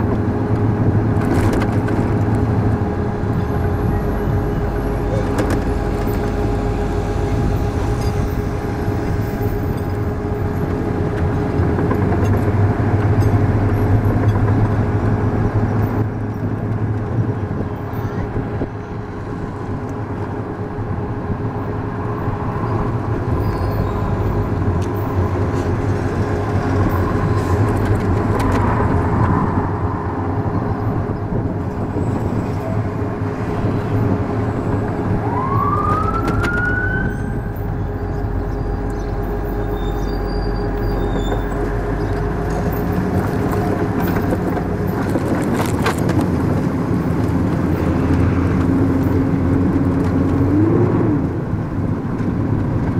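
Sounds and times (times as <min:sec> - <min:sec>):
armoured vehicle engine and road noise: 0:00.0 - 0:52.9
constant whine: 0:00.0 - 0:52.9
siren-like wail: 0:02.6 - 0:11.8, 0:32.2 - 0:42.8.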